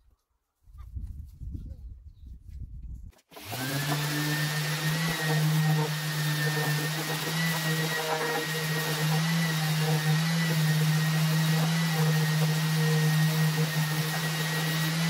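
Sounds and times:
dust extractor running: 0:03.3 - 0:15.0
orbital sander on wood: 0:03.3 - 0:15.0.

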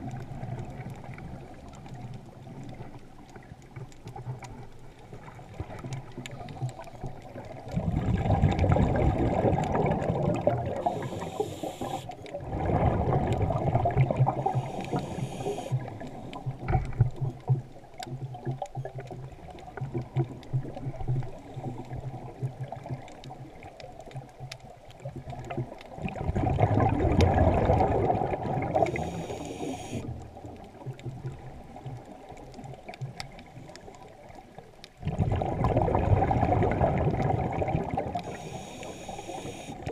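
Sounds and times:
underwater bubbling rushing water: 0:00.0 - 0:39.9
short hiss: 0:10.9 - 0:12.1, 0:14.6 - 0:15.8, 0:38.3 - 0:39.8.

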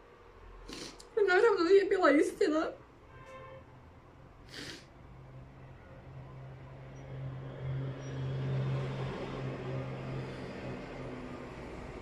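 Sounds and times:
vehicle engine hum passing: 0:05.1 - 0:12.0.

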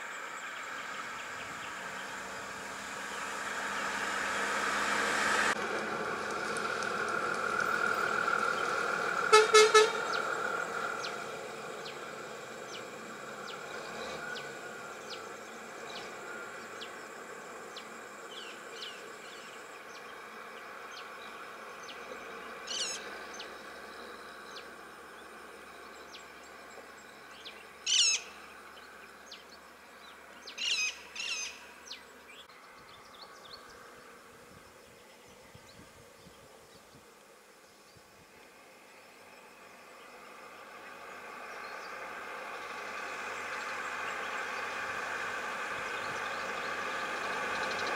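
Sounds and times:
vehicle engines idling: 0:00.0 - 0:47.9
birds chirping: 0:07.7 - 0:37.0, 0:45.7 - 0:47.9.

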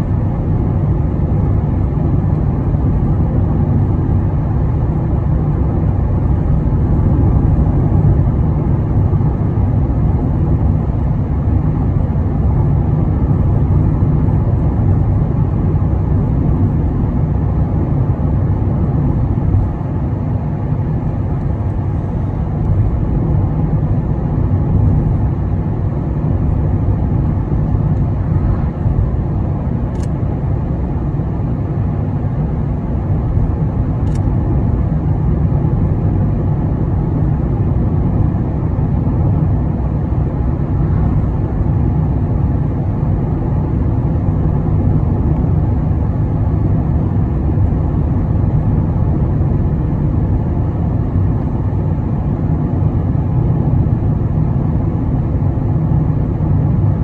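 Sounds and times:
car road noise from inside: 0:00.0 - 0:57.0.

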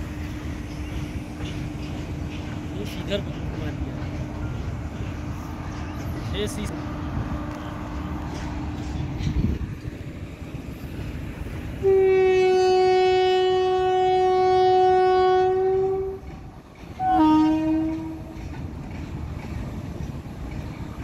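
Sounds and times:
freight train rumbling past: 0:00.0 - 0:21.0
locomotive horn blasts: 0:11.8 - 0:16.3, 0:17.0 - 0:18.4.

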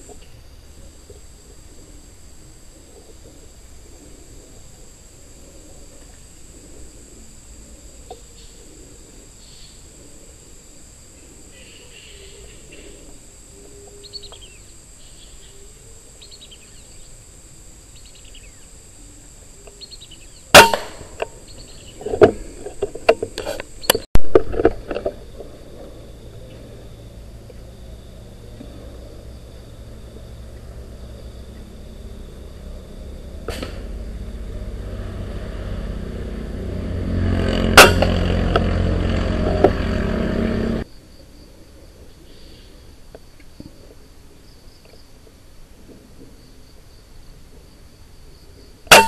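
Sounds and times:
air rifle shot: 0:20.5 - 0:21.2, 0:37.8 - 0:38.4.

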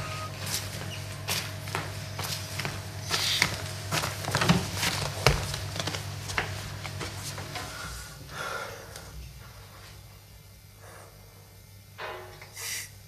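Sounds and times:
low steady hum: 0:00.0 - 0:13.0
man breathing heavily: 0:07.6 - 0:10.0, 0:10.7 - 0:11.6
sniffs: 0:12.6 - 0:12.9.

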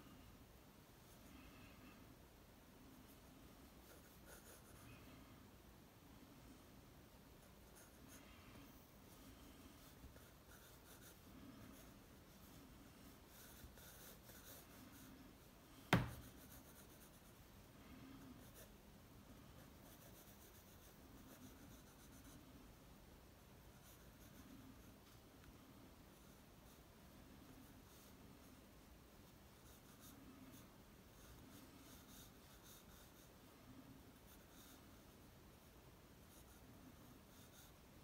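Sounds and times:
pencil scratching on paper: 0:03.1 - 0:05.1, 0:07.4 - 0:18.8, 0:19.4 - 0:22.5, 0:23.7 - 0:25.0, 0:26.1 - 0:28.5, 0:29.3 - 0:35.6, 0:36.2 - 0:38.0.

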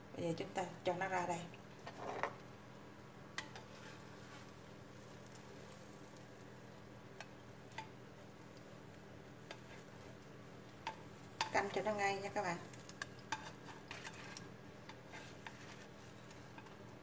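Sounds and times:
low hum and hiss: 0:00.0 - 0:17.0
spatula scraping frying pan: 0:01.8 - 0:02.4, 0:03.4 - 0:04.6, 0:09.4 - 0:10.2, 0:12.7 - 0:16.8.

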